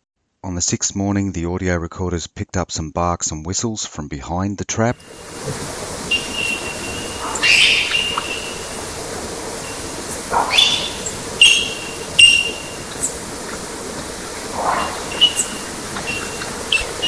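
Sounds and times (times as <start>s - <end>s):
steady hiss: 5.0s - 17.0s
animal bark-like calls with whistle: 6.0s - 8.9s, 9.6s - 13.3s, 14.4s - 17.0s.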